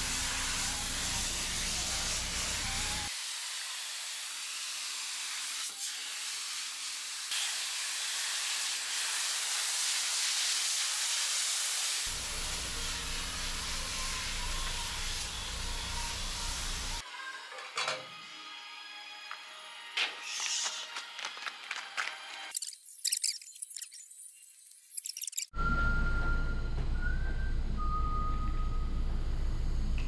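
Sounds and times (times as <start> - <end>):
pressure washer spraying car: 0.0 - 17.0
low hum: 25.6 - 30.0.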